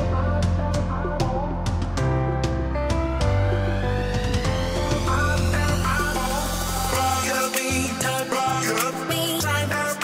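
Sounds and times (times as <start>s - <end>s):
instrumental background music: 0.0s - 10.0s
rising sweep: 3.1s - 9.1s.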